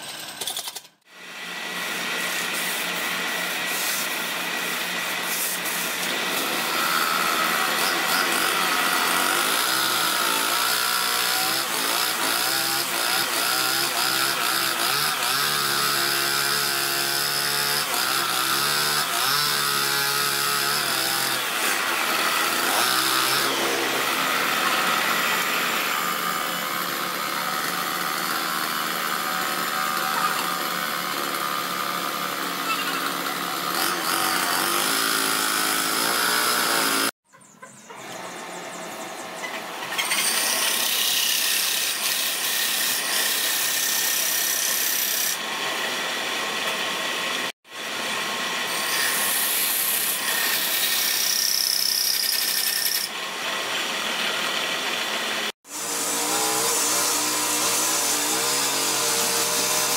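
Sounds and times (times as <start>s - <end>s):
sanding hiss on spinning wood: 2.2s - 6.0s.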